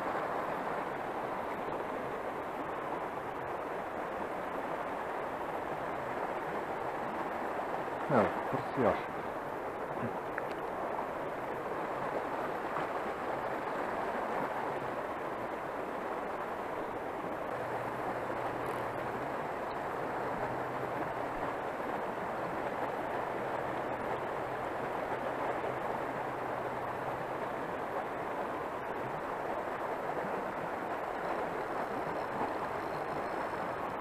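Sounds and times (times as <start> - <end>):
river water rushing: 0.0 - 34.0.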